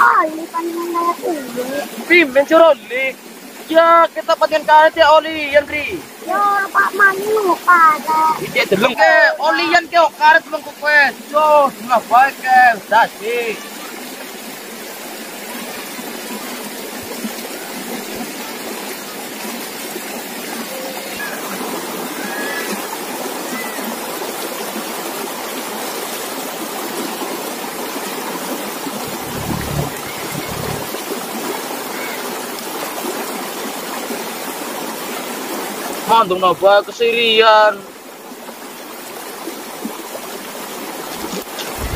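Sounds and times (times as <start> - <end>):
river water rushing: 0.0 - 41.9
low rumble: 29.0 - 31.0.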